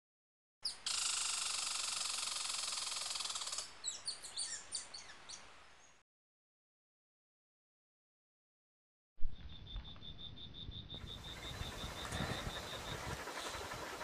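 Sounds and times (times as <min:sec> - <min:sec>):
bird buzzing trill: 0:00.6 - 0:03.7, 0:11.0 - 0:14.0
bird chirps falling: 0:09.2 - 0:11.6.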